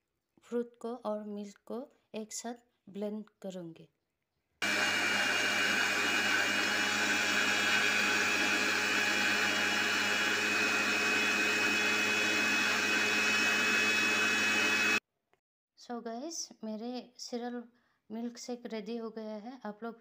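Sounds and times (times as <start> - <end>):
electric blender running: 4.6 - 15.0.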